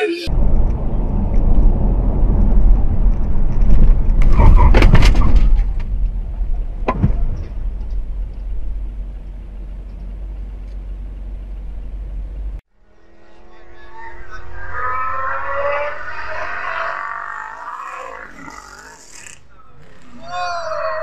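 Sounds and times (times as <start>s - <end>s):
car cabin road rumble: 0.2s - 12.6s.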